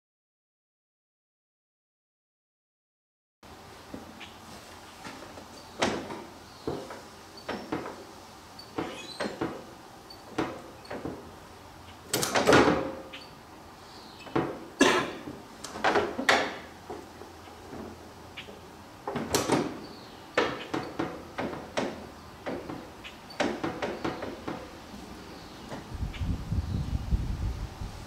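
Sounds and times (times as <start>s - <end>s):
metal clunks and rattles: 5.0s - 8.0s, 8.6s - 11.3s, 12.1s - 13.1s, 14.2s - 24.8s.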